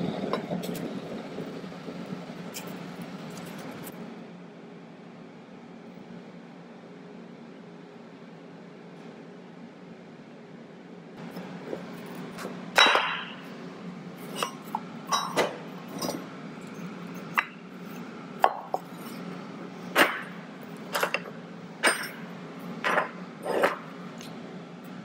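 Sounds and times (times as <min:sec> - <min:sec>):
steel form and wooden block clinking: 0:19.9 - 0:23.9.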